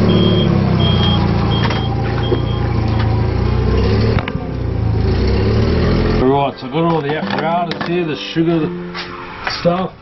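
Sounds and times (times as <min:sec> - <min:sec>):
reversing alarm beeps: 0:00.0 - 0:03.0
forklift engine running: 0:00.0 - 0:06.4.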